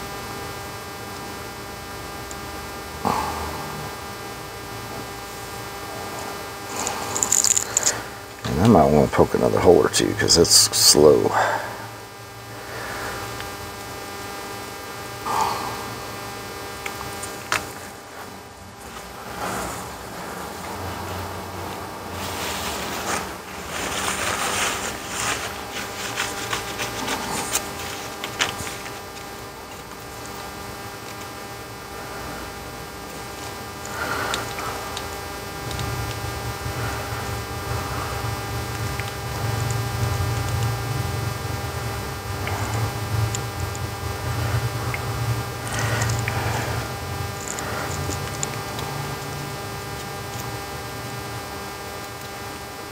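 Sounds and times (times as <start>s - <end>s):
electrical mains hum: 0.0s - 52.9s
faint ticks and rustles: 6.1s - 8.8s, 21.7s - 37.2s, 41.9s - 52.6s.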